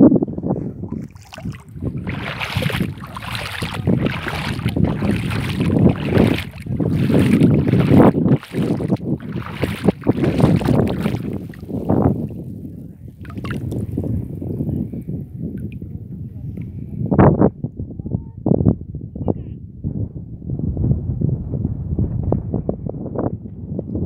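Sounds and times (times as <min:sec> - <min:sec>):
wind buffeting microphone: 0:00.0 - 0:24.0
person wading through water: 0:00.5 - 0:12.5, 0:13.1 - 0:14.3
brine sloshing and splashing: 0:00.9 - 0:12.4, 0:13.2 - 0:13.9.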